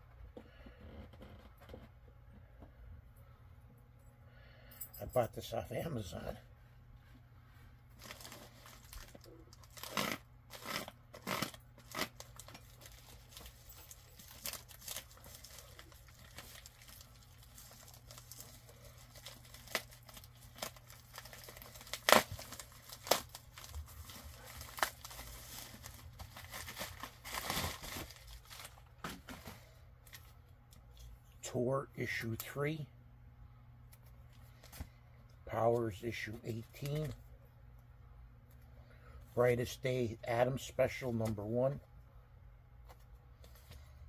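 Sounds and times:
plastic mailer being torn: 0:08.0 - 0:28.8
plastic crinkling and rustling: 0:08.0 - 0:30.4.

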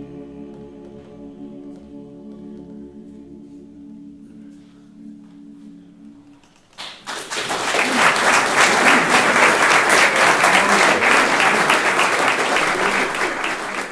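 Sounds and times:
male choir singing chord: 0:00.0 - 0:06.5
audience applause: 0:06.7 - 0:13.9.

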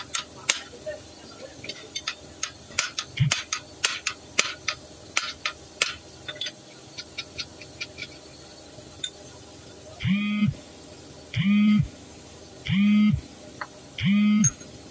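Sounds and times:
ratchet clicking: 0:01.7 - 0:08.2.

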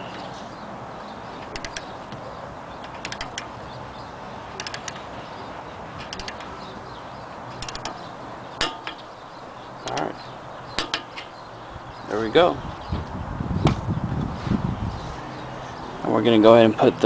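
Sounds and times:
ratchet wrench clicking: 0:01.4 - 0:01.9, 0:02.8 - 0:03.5, 0:04.6 - 0:05.0, 0:06.0 - 0:06.5, 0:07.6 - 0:08.0.

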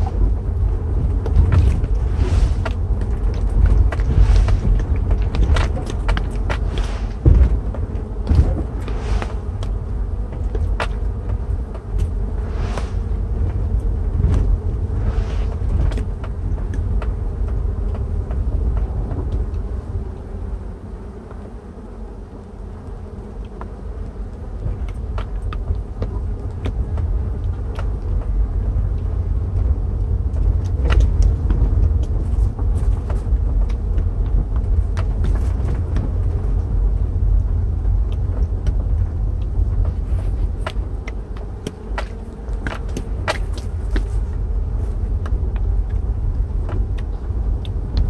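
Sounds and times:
car road rumble: 0:00.0 - 0:20.5, 0:24.6 - 0:48.0
honeybees rushing buzz: 0:00.0 - 0:28.7, 0:38.8 - 0:46.1.

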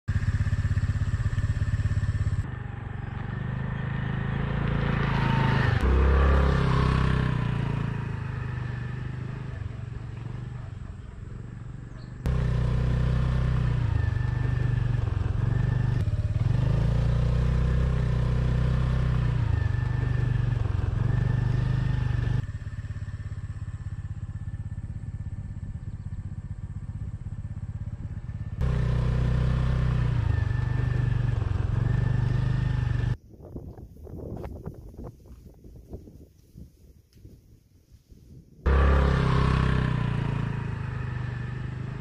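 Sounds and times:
motorbike engine running: 0:00.1 - 0:33.2, 0:38.7 - 0:42.0.

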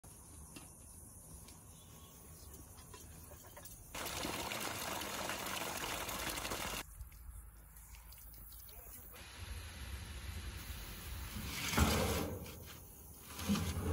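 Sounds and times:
water running: 0:04.0 - 0:06.8.

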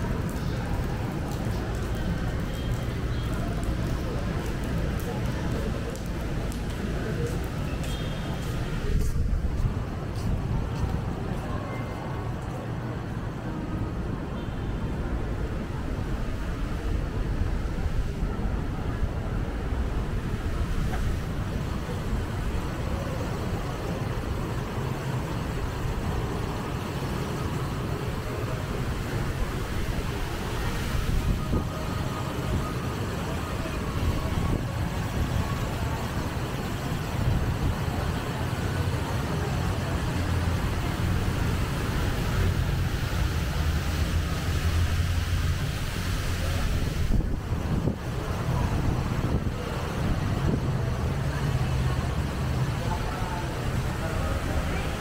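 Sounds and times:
city traffic rumble: 0:00.0 - 0:55.0
wind buffeting microphone: 0:46.5 - 0:50.9.

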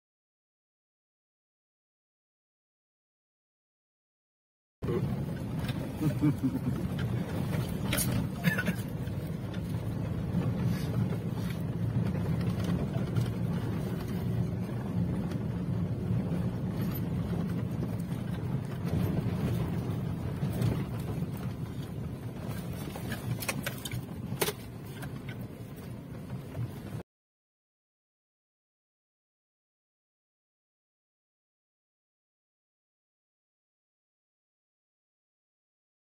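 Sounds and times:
engine and road rumble: 0:04.8 - 0:27.0.

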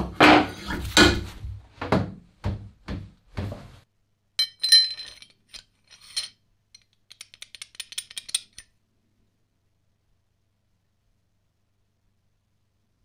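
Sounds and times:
steel jaw clinking and rattling: 0:04.4 - 0:08.7.

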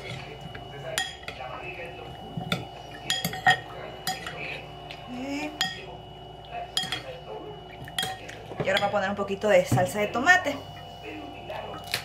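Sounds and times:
spoon clinking against bowl: 0:00.9 - 0:01.5, 0:02.5 - 0:04.5, 0:05.6 - 0:05.9, 0:06.7 - 0:07.2, 0:07.8 - 0:09.0.

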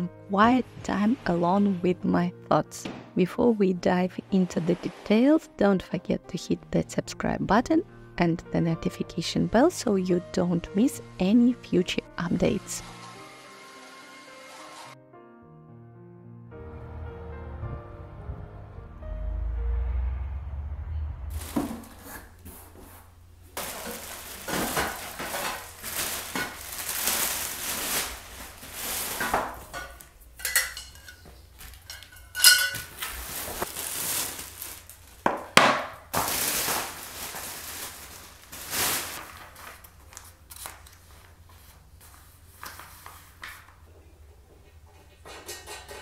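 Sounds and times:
packaging rustling: 0:23.6 - 0:30.1, 0:32.6 - 0:35.3, 0:36.1 - 0:41.4
steel rails clinking together: 0:29.7 - 0:32.9.

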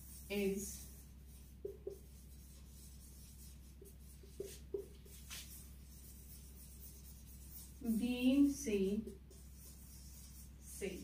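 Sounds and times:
marker squeaking on whiteboard: 0:01.3 - 0:08.0, 0:08.9 - 0:10.8.

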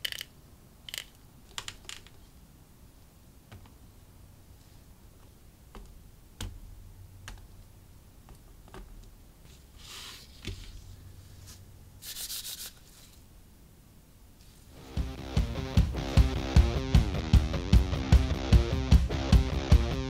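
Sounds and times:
rubbing sounds: 0:08.4 - 0:13.3.

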